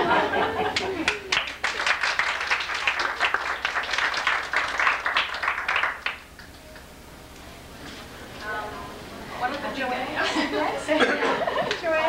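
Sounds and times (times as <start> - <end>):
people applauding: 0.6 - 6.6.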